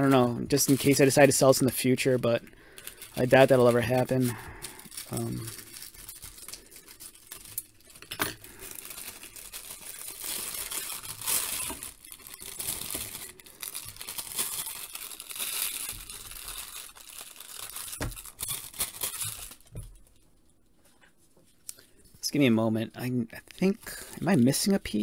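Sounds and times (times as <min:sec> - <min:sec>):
wrapping crinkling: 0:00.0 - 0:22.2.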